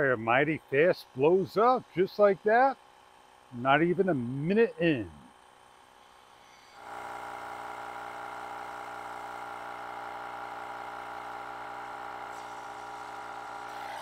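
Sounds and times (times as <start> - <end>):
tire inflator compressor whirring: 5.0 - 14.0.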